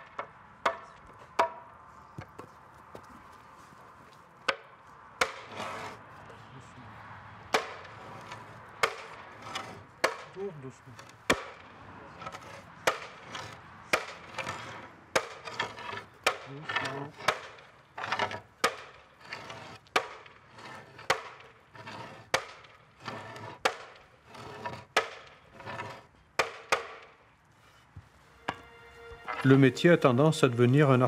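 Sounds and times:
sledgehammer striking wooden wheel: 0:07.5 - 0:10.4, 0:11.0 - 0:27.2.

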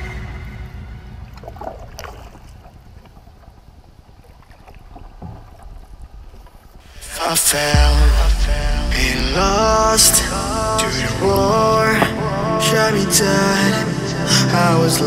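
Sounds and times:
water along hull: 0:00.0 - 0:15.0
paddle splashes: 0:01.1 - 0:07.5
wind rumble on microphone: 0:02.6 - 0:12.4.

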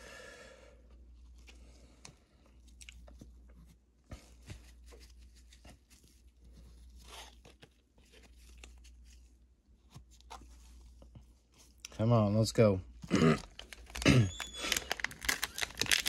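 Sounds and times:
pack wrapper tearing: 0:13.4 - 0:16.0.

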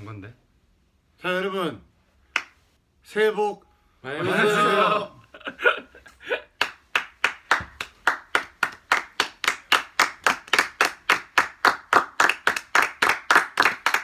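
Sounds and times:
people clapping in unison: 0:02.3 - 0:02.6, 0:06.6 - 0:14.0.

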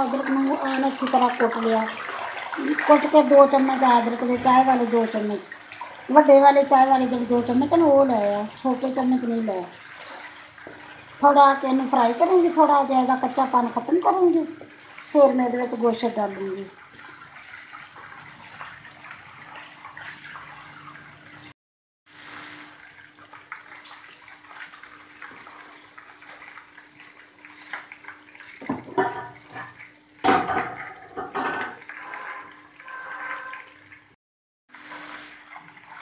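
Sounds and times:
ginger sizzling in hot oil: 0:00.0 - 0:19.8, 0:22.1 - 0:36.0
wooden spoon scraping pan: 0:31.2 - 0:33.8.

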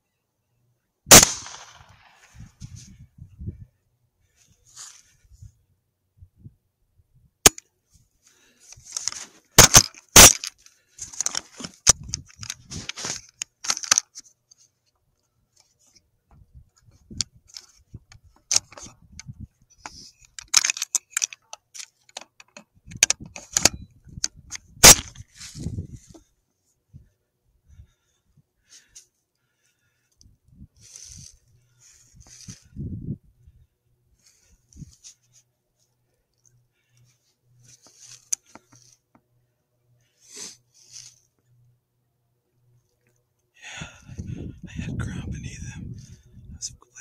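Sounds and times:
handling clicks and rustling: 0:08.6 - 0:26.4, 0:34.2 - 0:39.4.

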